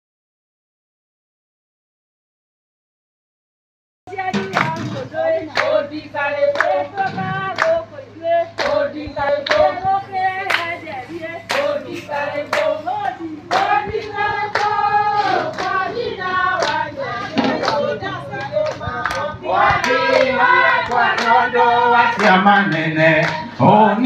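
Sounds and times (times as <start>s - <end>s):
women singing together: 4.1s - 24.0s
hands clapping: 4.4s - 4.8s, 5.5s - 5.8s, 6.5s - 7.8s, 8.6s - 8.8s, 9.4s - 9.8s, 10.5s - 10.8s, 11.5s - 14.8s, 15.4s - 15.8s, 16.6s - 16.9s, 17.5s - 21.4s, 22.1s - 23.5s.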